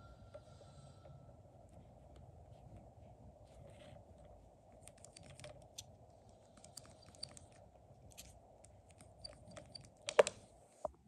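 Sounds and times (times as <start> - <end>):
steady low hum: 0.0 - 11.0
faint small clicks: 4.8 - 10.4.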